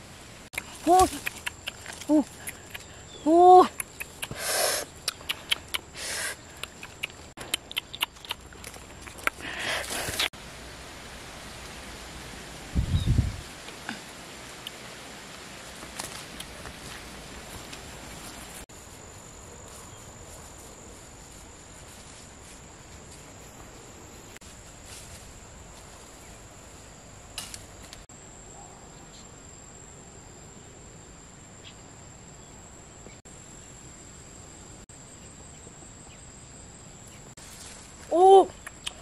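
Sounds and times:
outdoor background hiss: 0.0 - 39.0
insects shrilling: 0.6 - 10.3.

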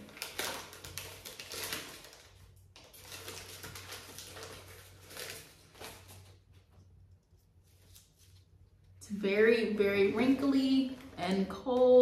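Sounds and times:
paper wrapping rustling: 0.0 - 8.8.

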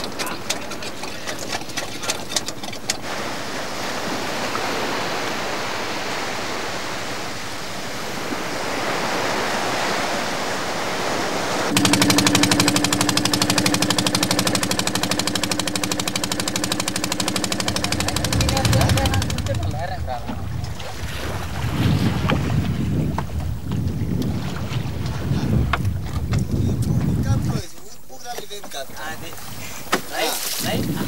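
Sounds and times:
small waves breaking on beach: 3.0 - 22.9, 29.2 - 31.0
boat diesel engine knocking: 11.7 - 20.6.

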